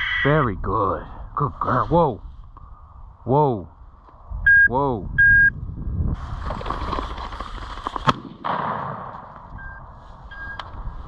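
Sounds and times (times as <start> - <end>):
short electronic beep: 4.5 - 5.5, 9.6 - 10.6
rustling: 6.2 - 8.1
shotgun shot: 8.1 - 9.4.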